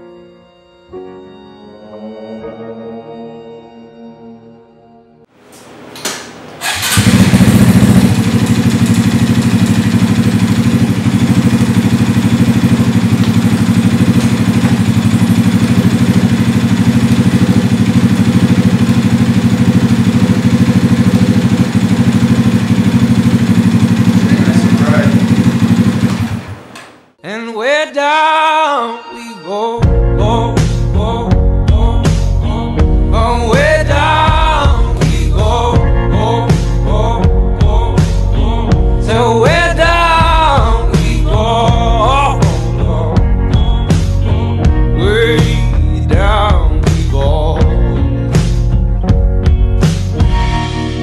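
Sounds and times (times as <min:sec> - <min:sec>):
motorcycle engine idling: 0:06.6 - 0:26.8
music with singing: 0:27.2 - 0:51.0.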